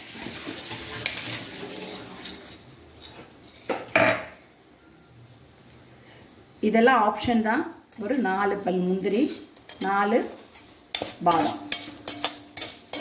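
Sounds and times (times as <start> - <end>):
metal spatula scraping a pan: 0.2 - 3.9, 9.1 - 13.0.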